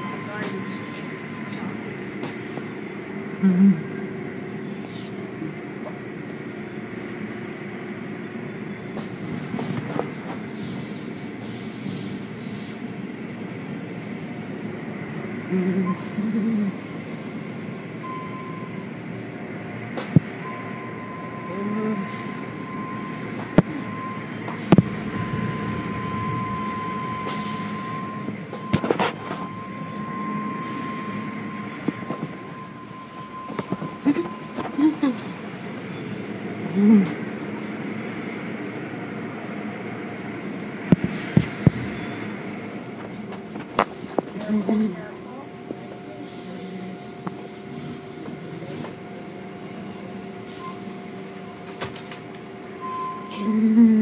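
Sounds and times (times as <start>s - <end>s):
constant high tone: 0.0s - 5.7s, 20.4s - 35.4s, 52.7s - 54.0s
car wash machinery rumble: 0.0s - 54.0s.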